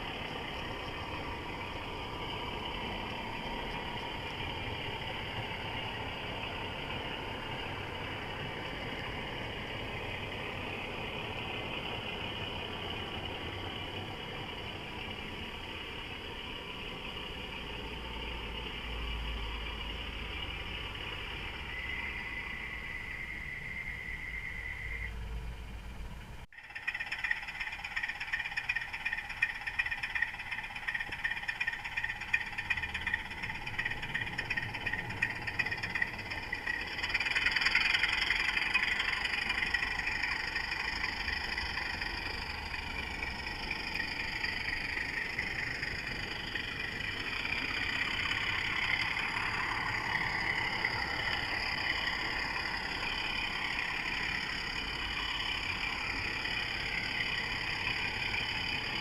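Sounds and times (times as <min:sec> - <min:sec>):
wheels clicking over rail joints: 0:00.0 - 0:22.7, 0:25.2 - 0:59.0
model train motor whine: 0:26.6 - 0:59.0.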